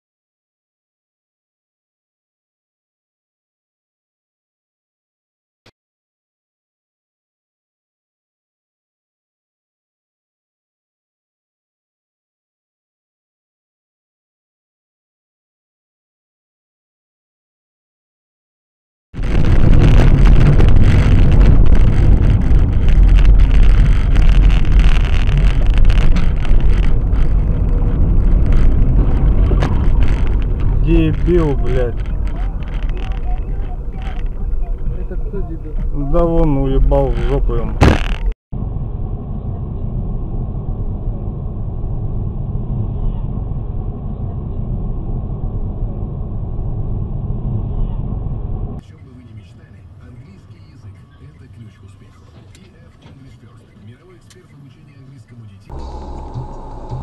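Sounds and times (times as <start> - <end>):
road and wind rumble in car: 19.2 - 57.0.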